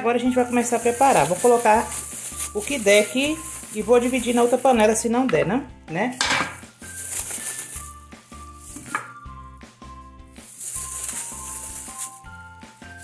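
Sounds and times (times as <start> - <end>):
background music with low beat: 0.2 - 10.5
gloved hand handling pork: 0.3 - 5.0, 6.6 - 9.0, 10.4 - 13.0.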